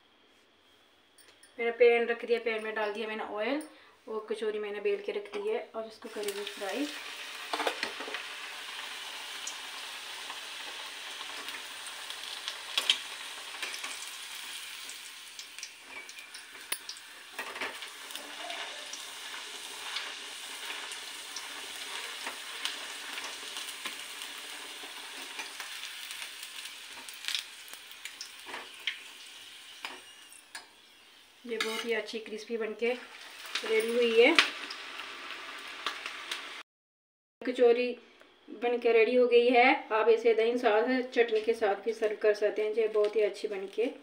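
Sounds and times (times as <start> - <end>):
deep-frying sizzle: 6.0 - 36.6
metal spatula clink: 31.6 - 31.9.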